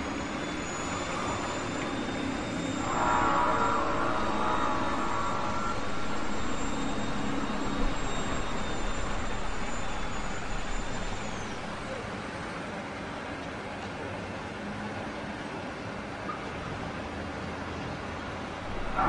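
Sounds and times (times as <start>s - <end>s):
wavering mid-pitched tone: 0.0s - 12.1s, 18.6s - 19.0s
groaning rumbling drone: 0.0s - 12.2s, 18.6s - 19.0s
thin high whine sliding down: 0.0s - 12.2s, 18.6s - 19.0s.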